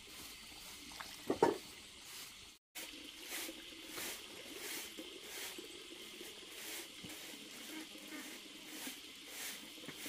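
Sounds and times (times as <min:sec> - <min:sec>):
water pouring from bottle: 0:00.5 - 0:01.6.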